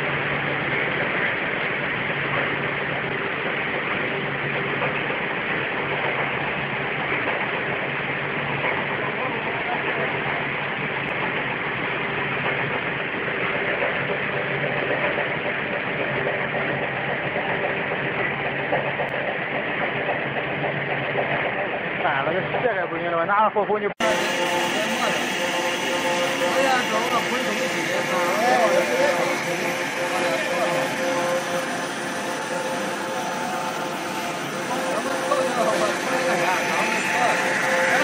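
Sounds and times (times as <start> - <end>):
machinery whirring: 0.0 - 38.0
low machine hum: 23.9 - 38.0.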